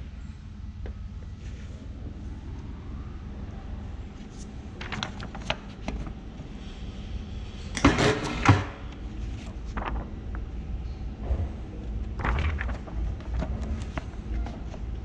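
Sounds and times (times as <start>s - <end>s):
paper sheets rustling: 4.2s - 6.2s, 8.5s - 15.0s.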